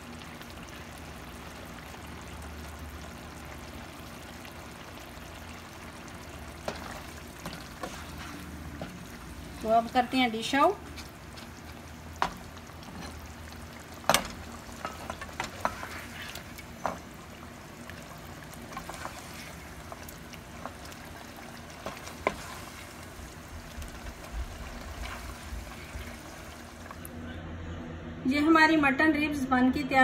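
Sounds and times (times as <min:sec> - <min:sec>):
gravy sizzling: 0:00.0 - 0:27.1
spoon knocking and scraping pan: 0:06.6 - 0:09.0, 0:14.0 - 0:17.1.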